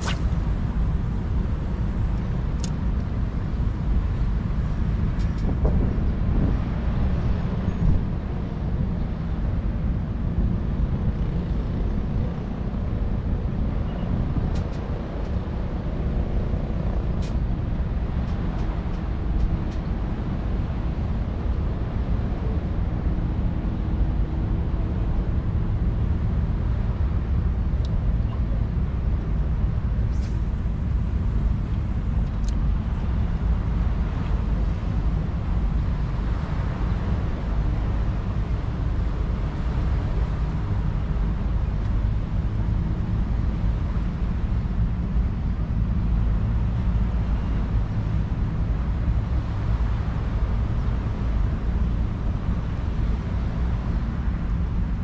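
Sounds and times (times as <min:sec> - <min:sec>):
low outdoor rumble: 0:00.0 - 0:55.0.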